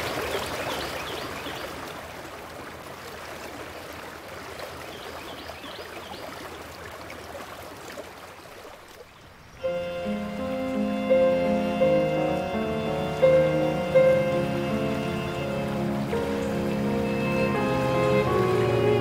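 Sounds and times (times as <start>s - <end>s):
stream water rushing: 0.0s - 19.0s
music with sustained tones: 9.6s - 19.0s.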